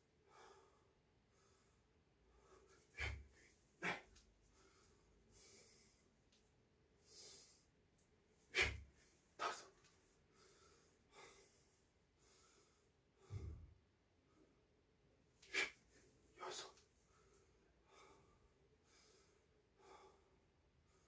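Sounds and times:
man forceful exhalations: 2.9s - 4.2s, 8.5s - 9.6s, 13.2s - 13.7s.

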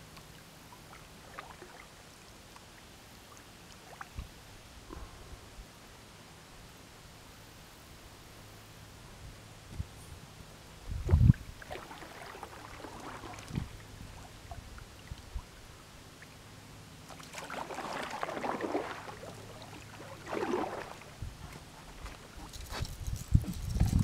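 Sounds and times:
paddle splashing through water: 11.1s - 15.5s, 17.0s - 22.7s.

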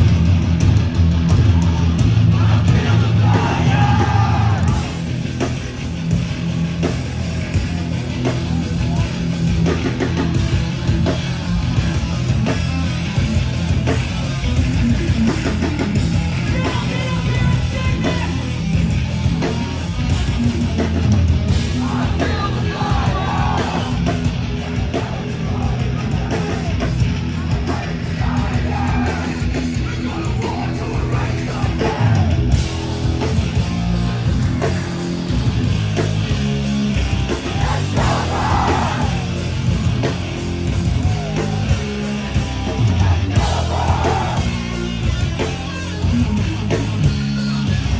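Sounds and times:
pounding drums: 0.0s - 7.8s, 20.3s - 47.2s
bass guitar: 0.0s - 47.9s
distorted electric guitars: 0.0s - 47.9s
shouted vocals: 1.4s - 5.0s, 21.7s - 32.6s, 37.1s - 39.6s, 40.8s - 44.8s.

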